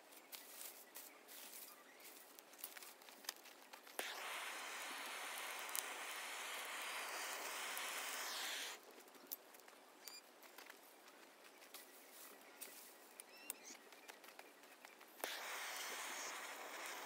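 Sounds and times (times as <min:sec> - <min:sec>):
gas torch flame hissing: 0:04.0 - 0:08.8, 0:15.2 - 0:17.0.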